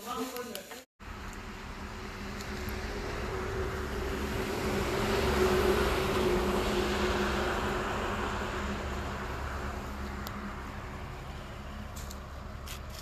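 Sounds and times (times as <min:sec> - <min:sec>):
vehicle engine passing by: 0:01.0 - 0:13.0.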